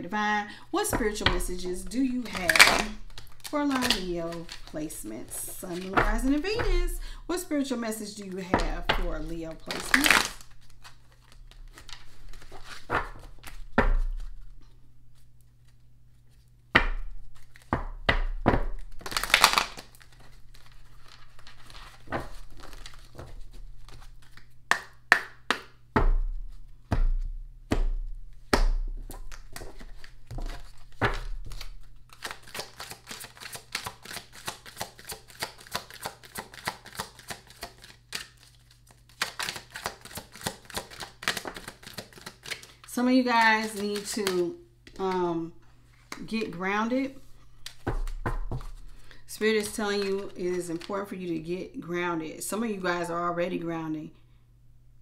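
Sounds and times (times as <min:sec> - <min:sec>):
cards being shuffled: 0:00.8 - 0:07.0, 0:08.4 - 0:14.6, 0:15.2 - 0:25.7, 0:26.5 - 0:45.4, 0:47.2 - 0:51.4
deck of cards tapping: 0:00.8 - 0:07.0, 0:08.4 - 0:10.3, 0:16.7 - 0:19.8, 0:22.0 - 0:38.0, 0:47.6 - 0:49.0.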